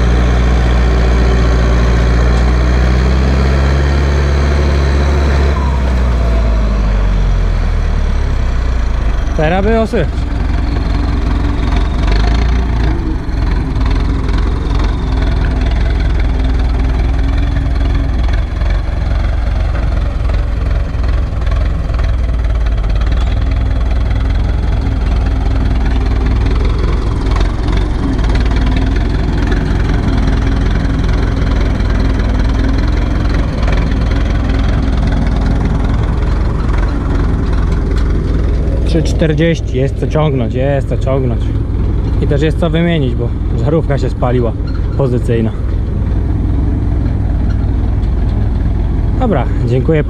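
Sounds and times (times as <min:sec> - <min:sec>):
tractor diesel engine under load: 0:00.0 - 0:50.0.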